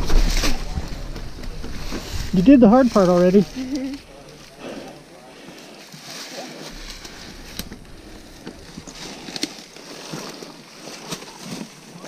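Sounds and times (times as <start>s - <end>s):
rustling of branches and litter: 0.0s - 12.0s
sharp clicks and knocks: 6.7s - 10.5s.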